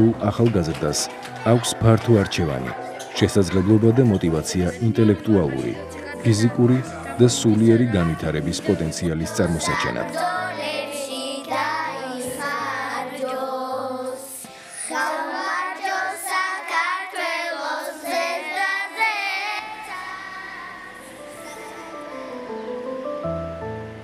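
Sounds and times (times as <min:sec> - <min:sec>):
low instrumental accompaniment: 0:00.0 - 0:13.3, 0:21.0 - 0:24.0
children singing: 0:07.5 - 0:22.7.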